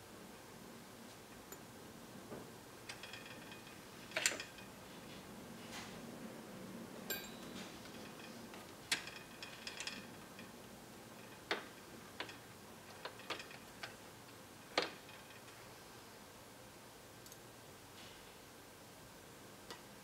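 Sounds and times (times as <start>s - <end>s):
metal parts clicking and tapping: 2.8s - 4.7s, 7.1s - 15.7s.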